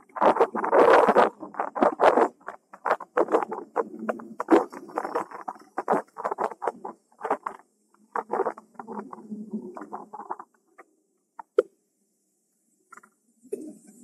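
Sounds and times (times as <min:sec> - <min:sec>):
wind noise on camera microphone: 0:00.0 - 0:10.4.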